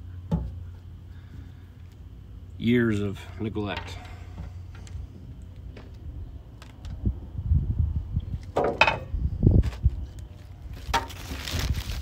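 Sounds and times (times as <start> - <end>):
wind buffeting microphone: 5.9 - 12.0.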